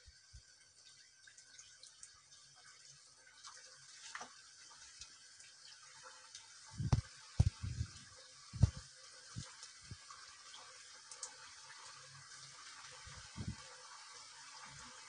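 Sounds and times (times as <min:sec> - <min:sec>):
food deep-frying in hot oil: 0:00.0 - 0:15.0
dull thumps: 0:06.8 - 0:07.9, 0:08.6 - 0:08.8.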